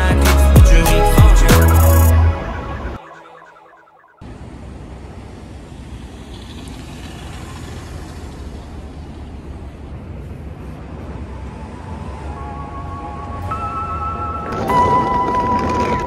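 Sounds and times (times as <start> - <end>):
rumble of passing cars: 4.2 - 16.0.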